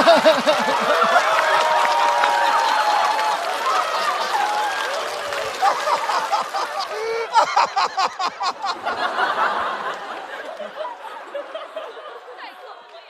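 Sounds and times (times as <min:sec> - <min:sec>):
studio audience laughing: 0:00.0 - 0:01.6, 0:05.3 - 0:12.6.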